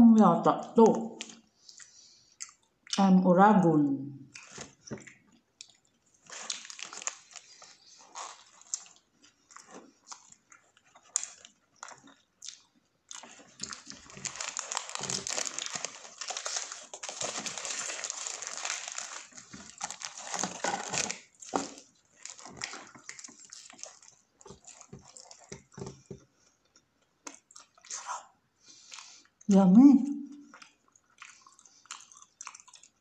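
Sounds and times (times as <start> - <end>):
chewing and mouth clicks: 1.2 - 3.0, 4.3 - 17.0, 22.3 - 28.0, 30.3 - 33.0
paper wrapper crinkling: 6.2 - 9.9, 13.2 - 25.7.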